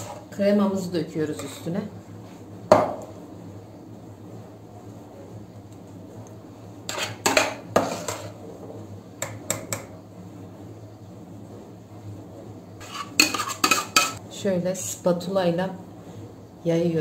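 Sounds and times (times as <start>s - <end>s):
metal spoon scraping steel bowl: 6.9s - 8.4s, 12.8s - 14.2s.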